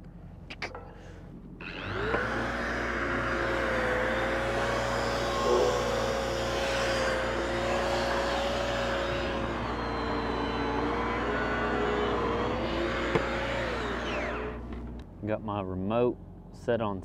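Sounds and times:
angle grinder on steel pipe: 1.6s - 14.7s
welding machine engine hum: 1.6s - 15.0s.

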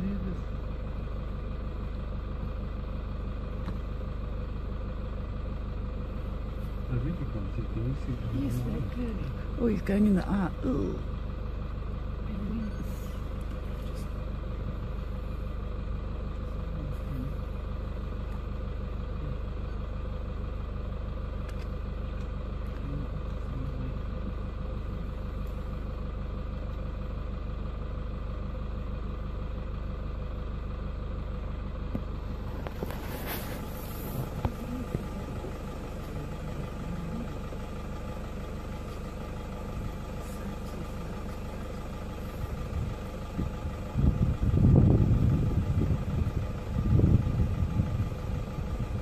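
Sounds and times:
vehicle engine idling: 0.0s - 49.0s.

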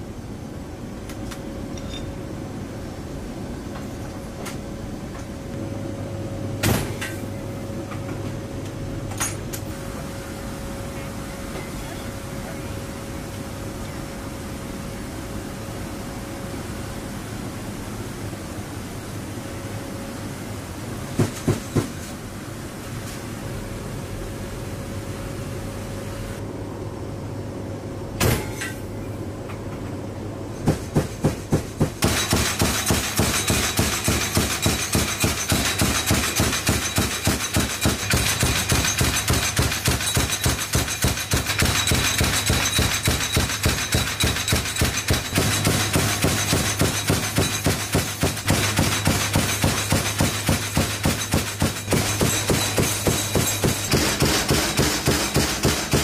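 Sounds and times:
rapid metallic clanking of cannon: 30.7s - 56.0s.

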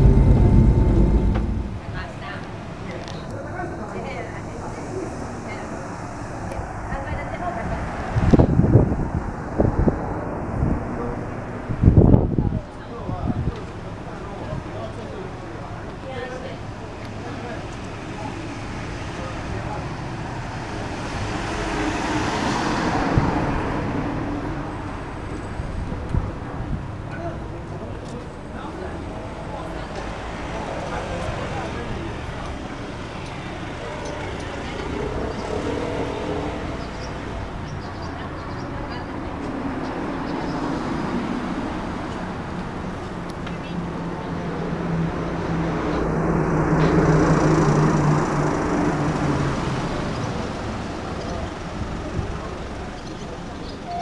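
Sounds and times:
car passing close by: 0.0s - 2.5s, 20.7s - 25.0s
vehicle passing: 0.0s - 2.5s.

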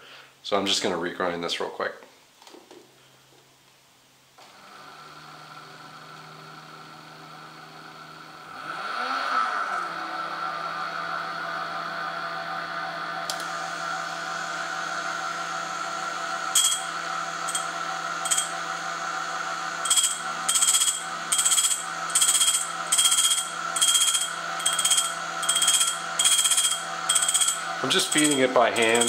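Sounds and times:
drill bit grinding on wheel: 16.1s - 29.0s
small motors running: 16.1s - 29.0s.

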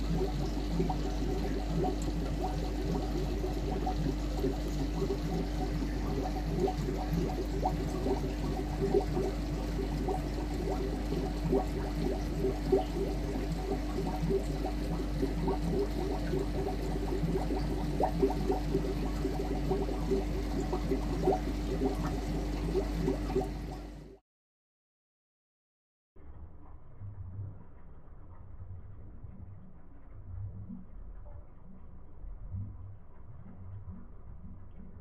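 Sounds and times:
aquarium water bubbling: 0.0s - 24.2s, 26.2s - 35.0s
steady low hum: 0.0s - 24.2s.

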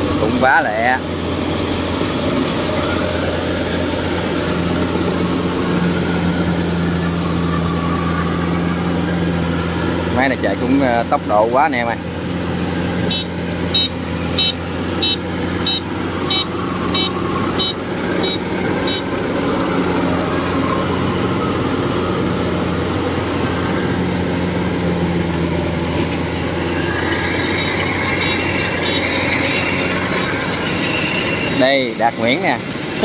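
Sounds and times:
combine harvester diesel engine: 0.0s - 33.0s
high electronic beeps: 13.0s - 19.5s, 26.7s - 31.7s.

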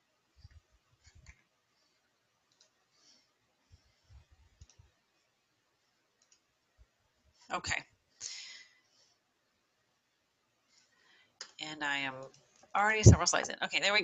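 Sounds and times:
computer mouse clicks: 2.5s - 2.8s, 6.2s - 6.5s.

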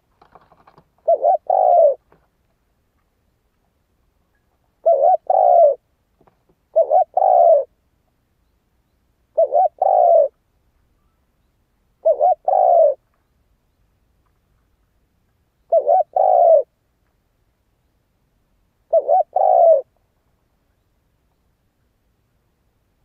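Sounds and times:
dove cooing: 1.0s - 2.0s, 4.8s - 5.8s, 6.7s - 7.8s, 9.3s - 10.4s, 12.0s - 13.0s, 15.7s - 16.7s, 18.9s - 19.9s.

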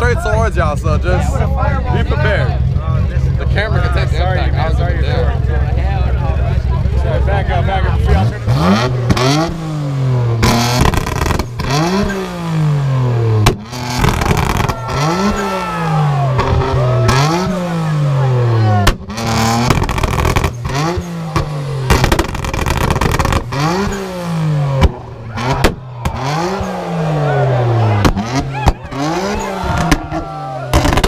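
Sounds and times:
car engine revving: 0.0s - 31.0s
sharp exhaust cracks: 8.2s - 17.9s, 18.8s - 31.0s.

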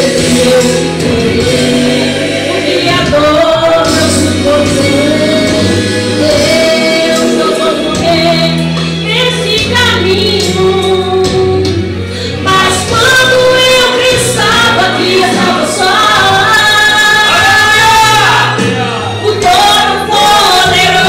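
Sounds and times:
backing track with bass notes: 0.0s - 21.0s
woman singing into microphone: 0.0s - 21.0s.

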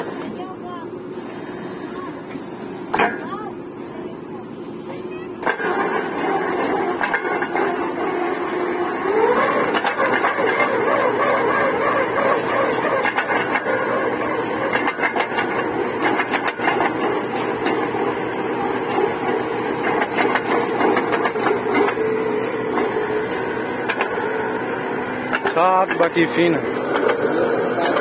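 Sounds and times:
drilling rig running: 0.0s - 28.0s
mechanical clatter and knocks: 2.9s - 3.4s, 5.4s - 8.5s, 9.2s - 24.4s, 25.2s - 28.0s.

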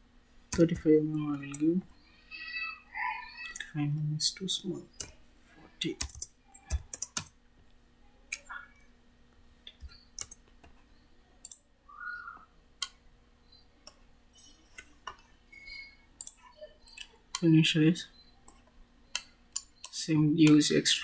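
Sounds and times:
mouse and keyboard clicks: 6.0s - 7.3s.

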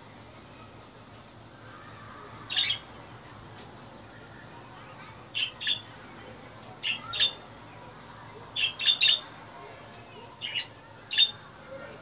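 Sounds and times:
budgerigars chirping: 8.6s - 9.2s.

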